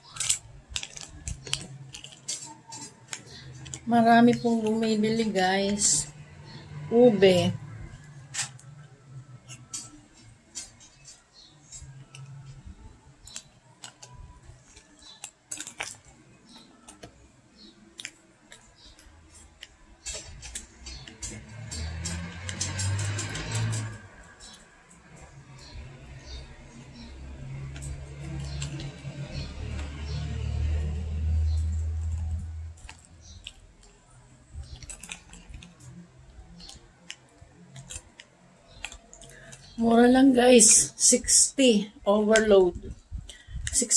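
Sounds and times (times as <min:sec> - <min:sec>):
metal spoon scraping ice in cup: 0:18.6 - 0:24.7.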